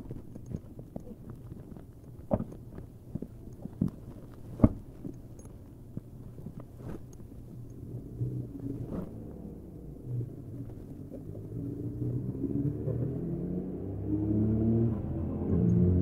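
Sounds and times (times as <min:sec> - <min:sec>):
soft handling rustles: 0:00.0 - 0:11.7
low steady hum: 0:00.0 - 0:16.0.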